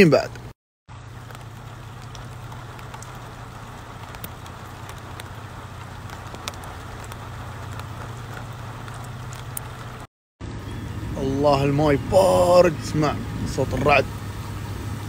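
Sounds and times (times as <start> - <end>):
drops ticking: 0.3 - 10.1
low hum: 0.4 - 15.0
rain and floodwater rushing: 0.4 - 15.0.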